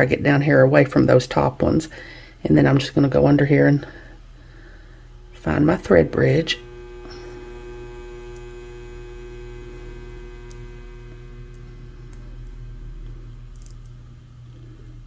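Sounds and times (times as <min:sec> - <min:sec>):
electrical mains hum: 0:00.0 - 0:15.0
faint ticks: 0:10.0 - 0:14.7.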